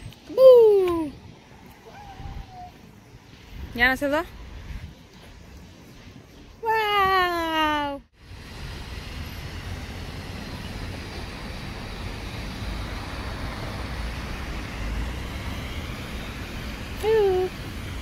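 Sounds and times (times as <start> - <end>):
high voice calling out: 17.0 - 17.5.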